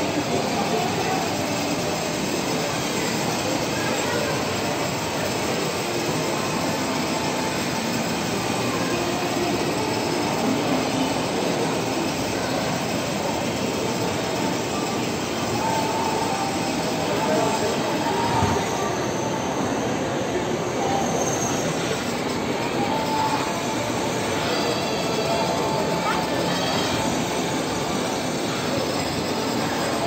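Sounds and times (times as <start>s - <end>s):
toy car electric motor whir: 0.2s - 18.8s.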